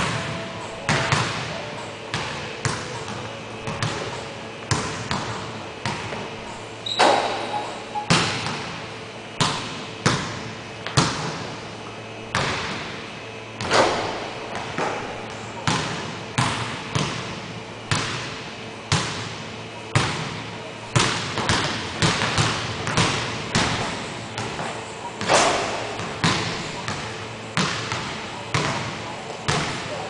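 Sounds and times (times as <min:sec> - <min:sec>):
basketball bouncing on hardwood floor: 0:00.0 - 0:06.2, 0:13.7 - 0:17.3, 0:21.0 - 0:24.6, 0:25.5 - 0:28.9.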